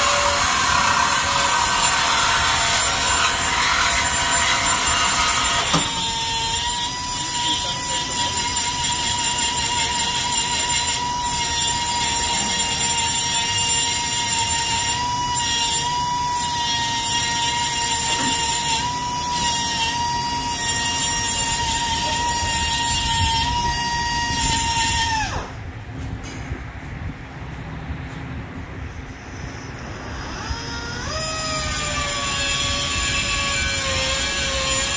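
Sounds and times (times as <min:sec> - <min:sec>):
saw rasping through metal: 0:00.0 - 0:25.5, 0:30.4 - 0:34.9
reciprocating saw motor whine: 0:29.6 - 0:34.9.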